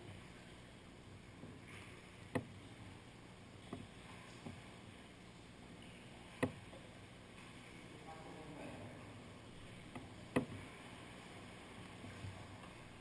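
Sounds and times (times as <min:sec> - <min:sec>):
quiet water noise: 0:00.0 - 0:13.0
kayak knocks: 0:01.4 - 0:02.6, 0:03.6 - 0:04.7, 0:06.3 - 0:06.8, 0:09.8 - 0:10.7.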